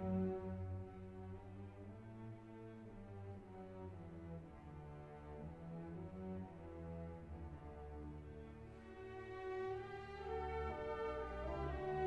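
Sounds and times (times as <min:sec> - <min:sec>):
orchestral music: 0:08.9 - 0:12.0.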